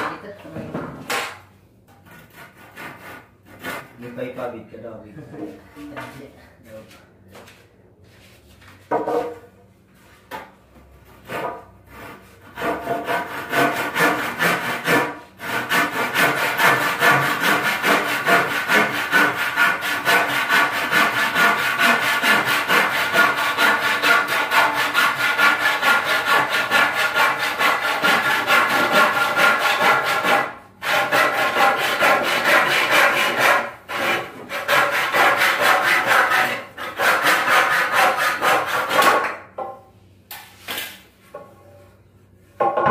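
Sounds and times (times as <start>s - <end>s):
hand saw cutting wood: 2.0s - 4.0s, 11.1s - 39.3s
wooden knocks: 42.6s - 42.9s.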